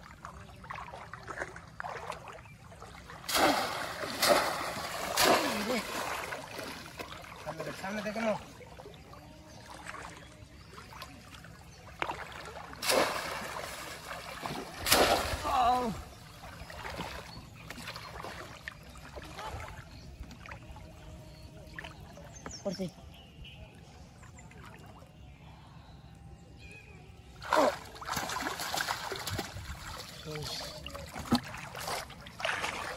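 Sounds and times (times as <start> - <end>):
water trickling and sloshing: 0.0 - 25.7, 27.3 - 32.9
loud splash: 3.2 - 7.0, 12.8 - 15.9, 27.4 - 30.0.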